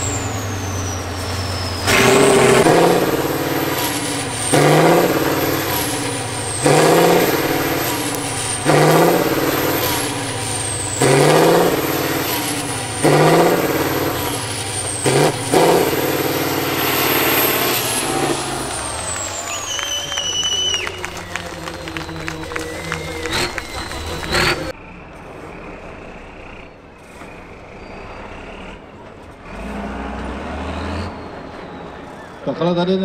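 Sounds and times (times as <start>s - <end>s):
high turbo whistle: 0.0s - 24.7s
diesel truck engine revving: 0.0s - 33.0s.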